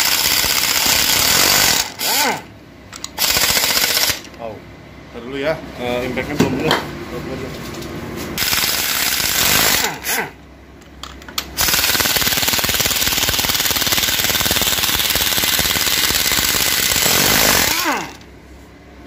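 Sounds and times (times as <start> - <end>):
motor winding down whine: 0.0 - 2.5, 11.6 - 18.3
impact wrench hammering: 11.3 - 18.2.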